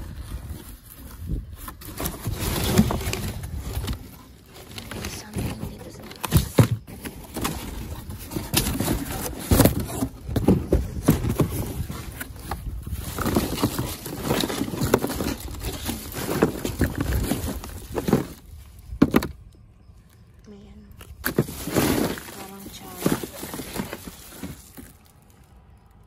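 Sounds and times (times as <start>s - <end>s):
plastic packaging crinkling: 0.0s - 19.4s, 20.9s - 26.0s
cardboard knocks and thumps: 4.8s - 18.4s.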